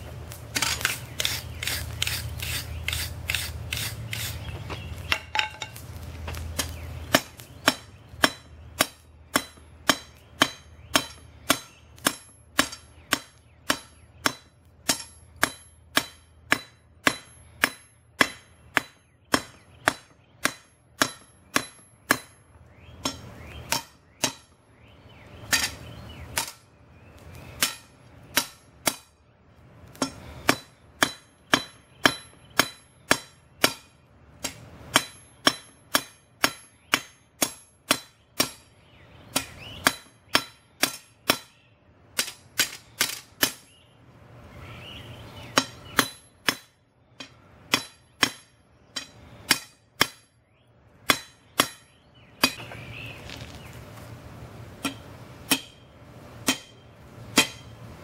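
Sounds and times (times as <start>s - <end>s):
hammer striking steel on anvil: 5.0s - 24.6s, 25.5s - 26.7s, 27.6s - 29.2s, 29.9s - 38.7s, 39.3s - 43.7s, 45.5s - 50.4s, 51.0s - 52.7s, 54.8s - 57.8s.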